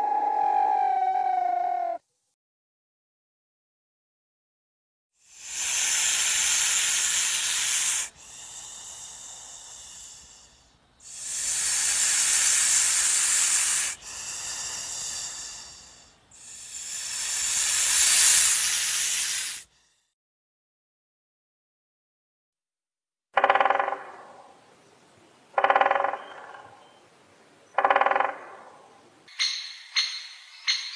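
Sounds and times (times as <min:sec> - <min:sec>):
loud hissing: 0:05.2 - 0:20.0.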